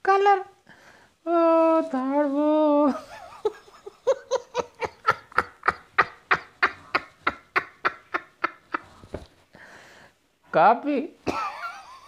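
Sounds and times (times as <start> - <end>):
man laughing hard: 2.9 - 8.9.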